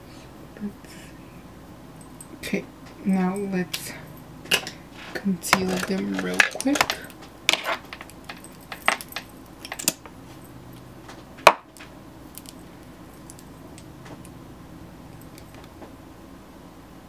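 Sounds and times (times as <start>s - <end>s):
makeup items clicking: 5.5s - 10.0s.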